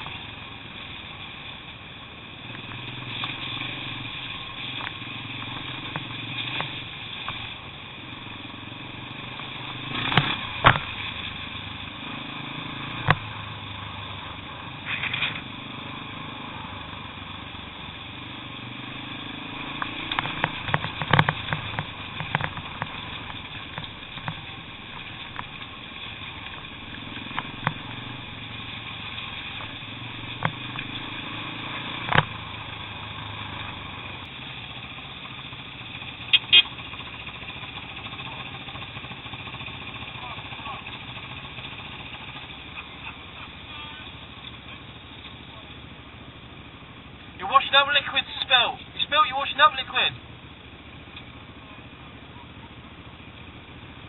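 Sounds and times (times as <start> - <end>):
motorcycle engine at low revs: 0.0 - 54.0
sharp knocks and clatters: 9.9 - 11.1, 19.6 - 28.1.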